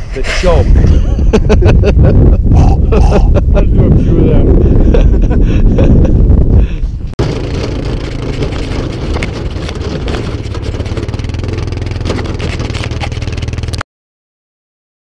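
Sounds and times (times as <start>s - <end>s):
atv engine running: 7.2s - 13.8s
small knocks and rattles: 7.2s - 13.8s.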